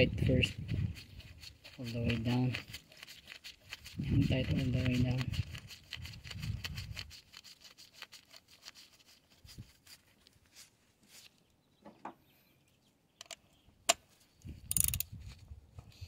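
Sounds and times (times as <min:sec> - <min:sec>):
rustle: 0:00.8 - 0:11.5
metallic clicks of hand tools: 0:14.7 - 0:15.1.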